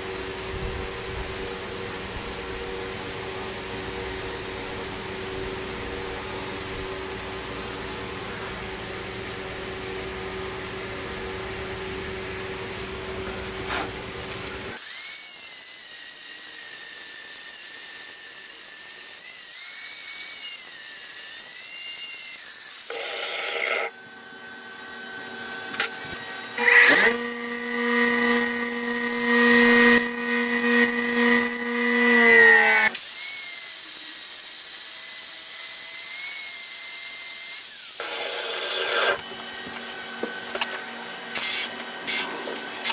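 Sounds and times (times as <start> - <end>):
angle grinder grinding steel: 14.8 - 24.0, 25.6 - 42.9.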